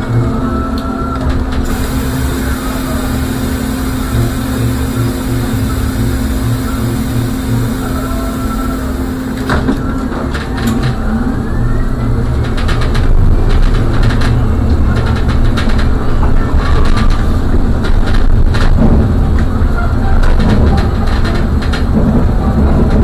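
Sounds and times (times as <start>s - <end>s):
trolleybus low hum: 0.0s - 23.0s
rising electric whine: 1.6s - 11.9s.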